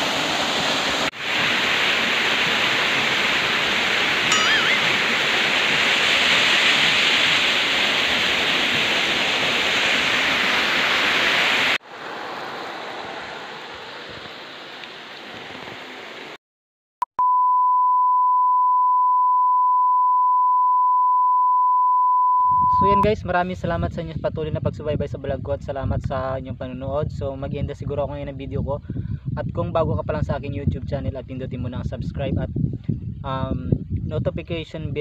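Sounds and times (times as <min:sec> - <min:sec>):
running water: 0:00.0 - 0:16.4
waterfall rushing: 0:00.0 - 0:16.4
steady test tone beep: 0:04.3 - 0:05.0, 0:17.1 - 0:23.0.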